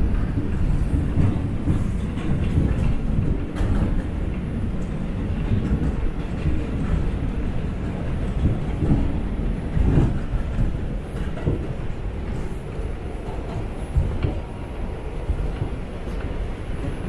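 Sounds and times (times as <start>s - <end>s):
wheels knocking and clattering: 0.0s - 12.4s
subway train rumbling on rails: 0.0s - 17.0s.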